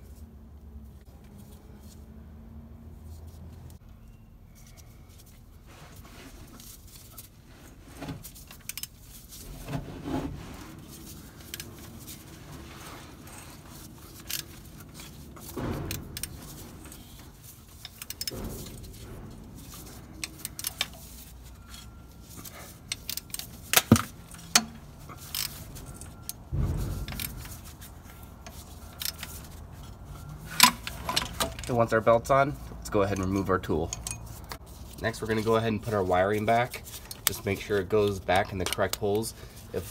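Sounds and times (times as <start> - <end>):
tool handling clatters: 5.9 - 39.9
metallic clicks and clinks: 32.9 - 35.6.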